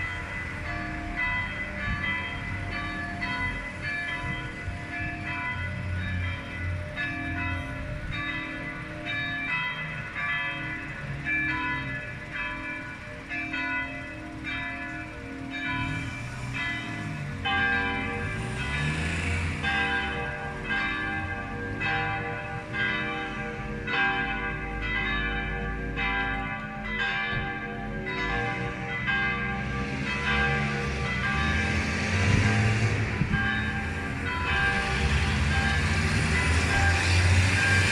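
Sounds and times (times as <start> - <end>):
church bells pealing: 0.0 - 37.9
deep bell tones: 0.0 - 37.9.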